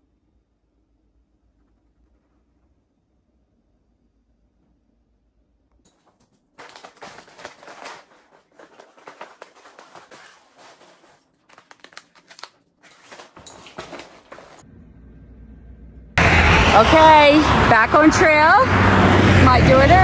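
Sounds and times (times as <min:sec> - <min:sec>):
plastic wrappers crinkling: 0:05.9 - 0:14.6.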